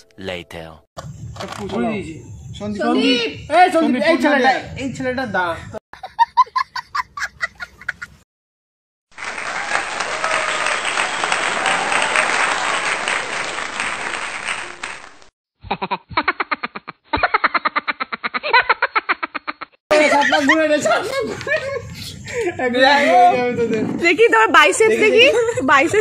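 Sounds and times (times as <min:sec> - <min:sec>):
crowd cheering and applauding: 0:09.1 - 0:15.3.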